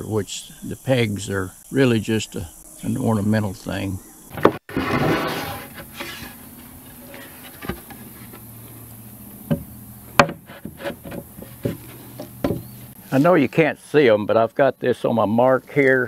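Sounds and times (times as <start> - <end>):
wood knocks: 9.5 - 12.8.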